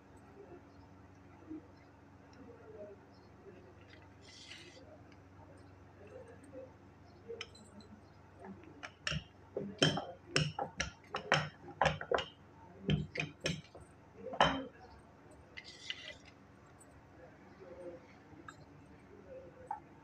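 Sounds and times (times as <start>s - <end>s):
rolling pin clicking on counter: 8.8s - 12.3s, 12.9s - 13.8s.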